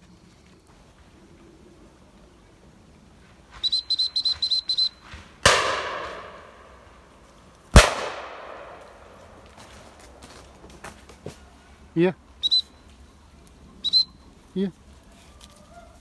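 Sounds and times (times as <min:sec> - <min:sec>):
whistle pips: 0:03.6 - 0:05.0, 0:12.4 - 0:12.9, 0:13.8 - 0:14.3
shotgun shots echoing: 0:05.4 - 0:07.1, 0:07.7 - 0:09.7.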